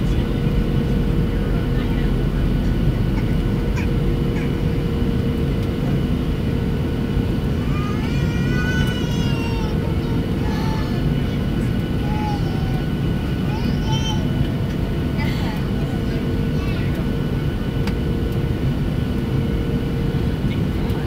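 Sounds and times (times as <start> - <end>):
airplane cabin roar: 0.0 - 21.0.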